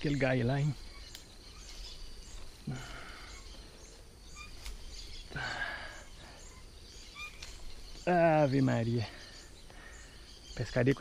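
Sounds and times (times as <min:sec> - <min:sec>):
birds chirping: 0:00.0 - 0:11.0
man sighing: 0:02.6 - 0:03.4, 0:05.3 - 0:06.2.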